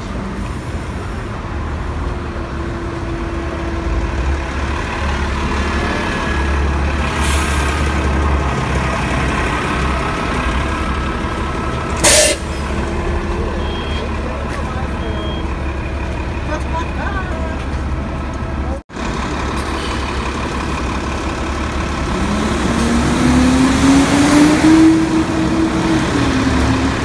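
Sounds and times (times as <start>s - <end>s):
bus engine idling: 0.0s - 23.4s.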